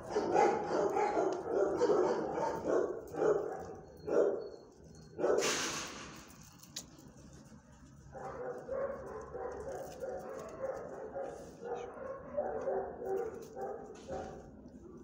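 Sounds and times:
dog barking: 0:00.0 - 0:04.6, 0:05.2 - 0:05.5, 0:08.1 - 0:14.5.

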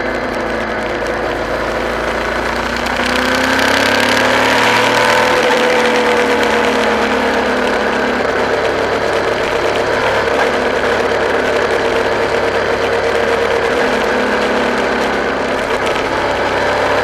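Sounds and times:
road noise: 0:00.0 - 0:17.0
vehicle engine accelerating: 0:00.0 - 0:17.0.

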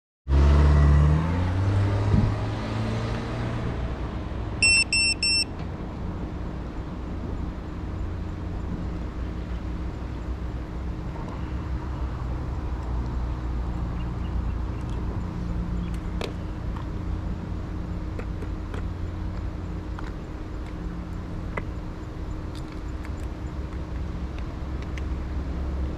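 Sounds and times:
short high electronic beeps: 0:04.6 - 0:05.5.

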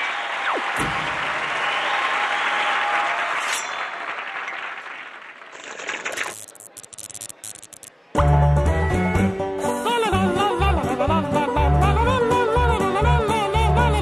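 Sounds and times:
studio audience applauding: 0:00.0 - 0:06.4.

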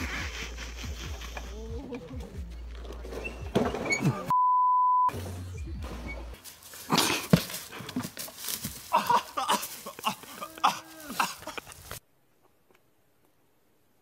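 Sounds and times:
men crying out and yelling: 0:08.8 - 0:12.0.

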